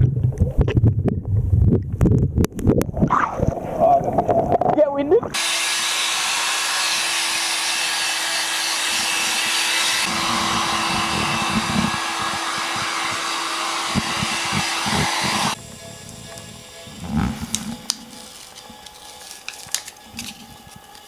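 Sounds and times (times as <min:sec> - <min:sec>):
deeper air rush: 0:05.3 - 0:18.2
hot-air blower motor whine: 0:05.4 - 0:21.0.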